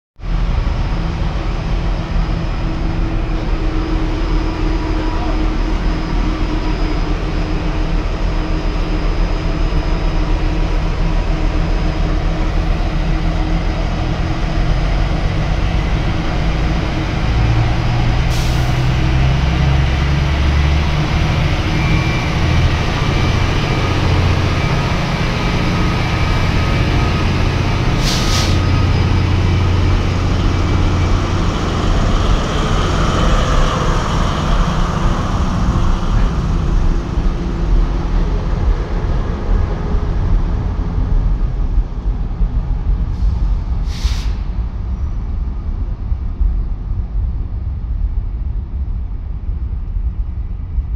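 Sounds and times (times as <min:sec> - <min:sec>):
locomotive engine rumble: 0:00.2 - 0:50.9
air hisses: 0:18.3 - 0:18.9, 0:28.0 - 0:28.7, 0:43.3 - 0:44.6.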